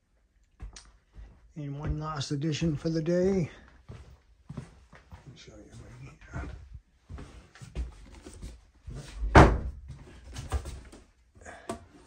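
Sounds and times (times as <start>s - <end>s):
door banging: 9.2s - 9.8s.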